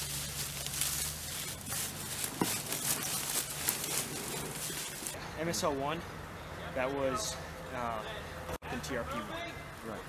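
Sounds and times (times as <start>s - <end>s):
footsteps crunching dry leaves: 0.0s - 5.2s.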